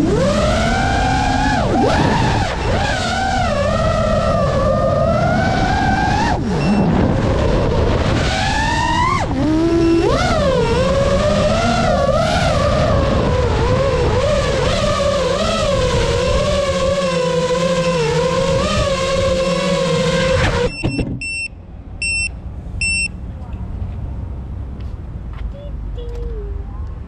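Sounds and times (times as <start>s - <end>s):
drone motors whining: 0.0s - 21.2s.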